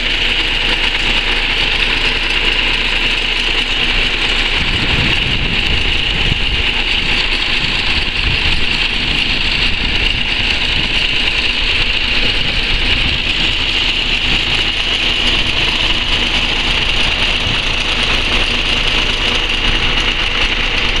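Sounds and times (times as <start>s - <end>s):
steady high engine whine: 0.0s - 21.0s
tractor diesel engine rumbling: 0.0s - 21.0s.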